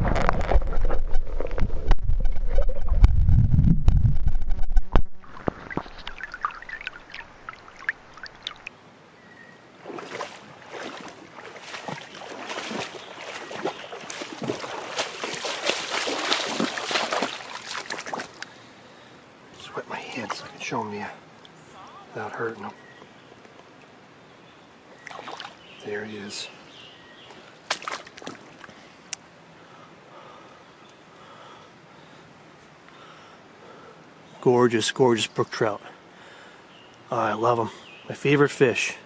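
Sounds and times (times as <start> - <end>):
underwater rumble with clicks: 0.0 - 8.7
water splashing and dripping: 0.1 - 8.7, 9.8 - 18.6, 25.0 - 25.6, 27.6 - 28.8.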